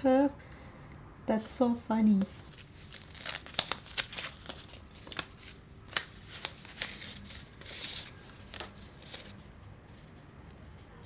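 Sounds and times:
paper and card rustling: 0:02.2 - 0:11.0.

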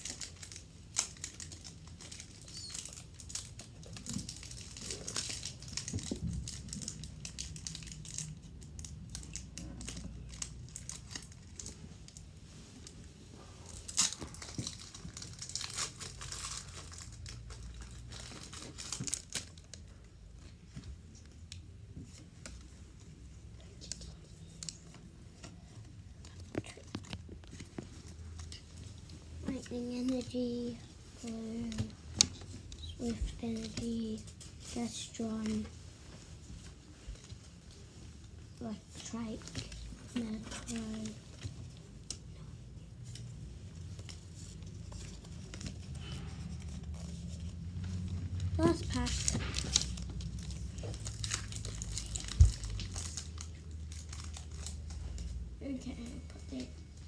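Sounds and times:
foil wrapper crinkling and tearing: 0:00.0 - 0:12.2, 0:13.7 - 0:20.0, 0:43.1 - 0:56.0.

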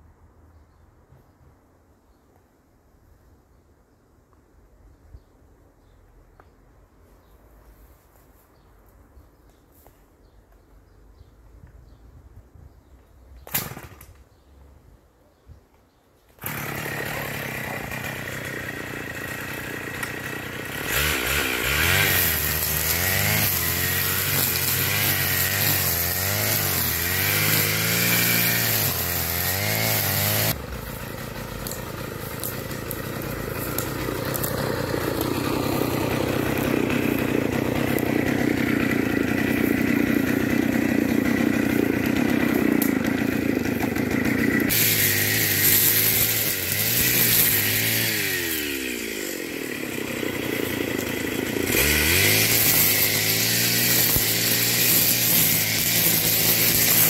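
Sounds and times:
brushcutter cutting grass: 0:16.4 - 0:57.0.

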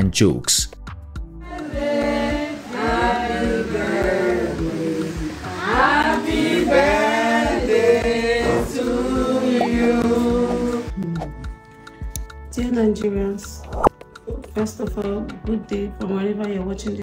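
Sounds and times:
group singing unaccompanied: 0:01.4 - 0:10.9.

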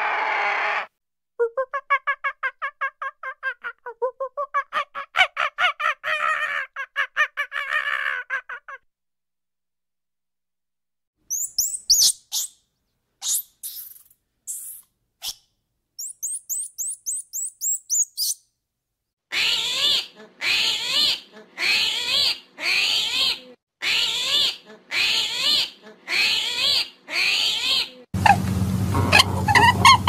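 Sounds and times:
harsh animal calls: 0:00.0 - 0:00.9, 0:04.6 - 0:08.8, 0:19.3 - 0:30.0
short high chirps: 0:11.3 - 0:12.5, 0:16.0 - 0:18.4.

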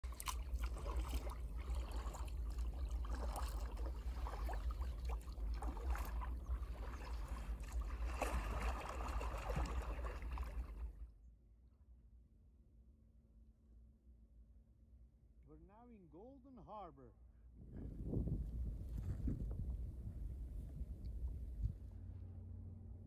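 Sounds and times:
small splashes: 0:00.0 - 0:11.0
water lapping against hull: 0:00.0 - 0:11.1
steady low rumble: 0:17.3 - 0:23.0.

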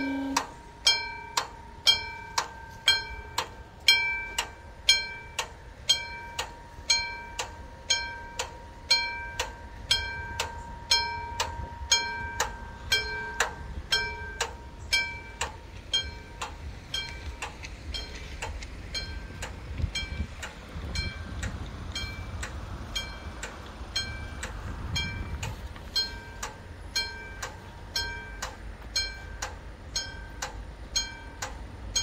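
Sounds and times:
level crossing warning bell: 0:00.0 - 0:32.0.

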